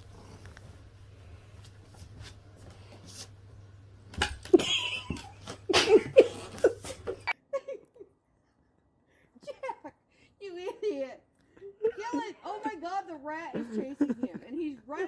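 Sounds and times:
people laughing: 0:13.5 - 0:14.7.

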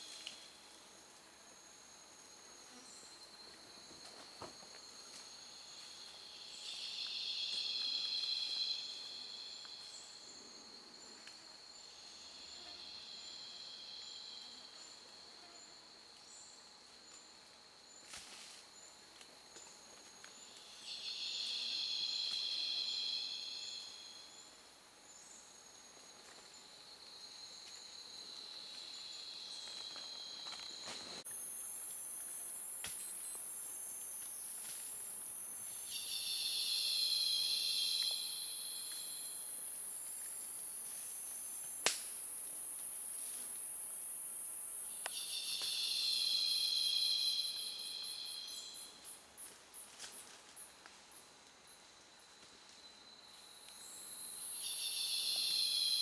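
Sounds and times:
high buzzing insect chorus: 0:00.0 - 0:56.0
insects whining and ticking: 0:00.0 - 0:56.0.

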